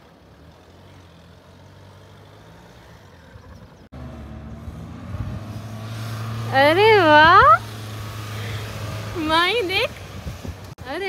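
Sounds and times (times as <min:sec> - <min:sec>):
distant car engine running: 0:00.0 - 0:11.0.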